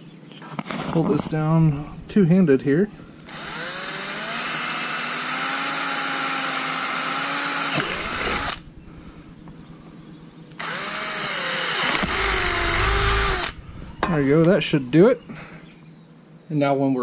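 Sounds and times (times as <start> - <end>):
power drill drilling: 3.2 - 8.7, 10.6 - 14.5.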